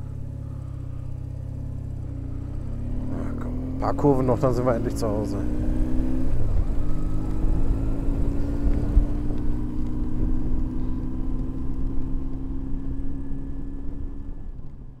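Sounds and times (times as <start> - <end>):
motorcycle engine cruising: 0.0 - 15.0
wind noise: 5.4 - 11.0.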